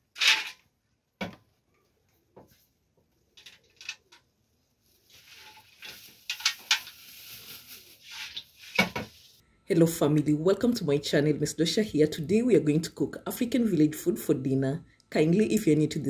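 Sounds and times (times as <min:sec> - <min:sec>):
plastic bag crinkling: 0:04.8 - 0:09.3
dried fish rattling on metal pan: 0:05.3 - 0:07.5.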